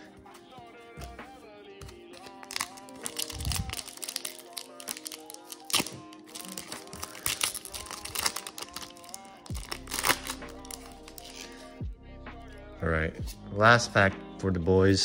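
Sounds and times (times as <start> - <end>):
background music with held notes: 0.0 - 15.0
trading cards and wrapping crinkling: 1.8 - 11.6.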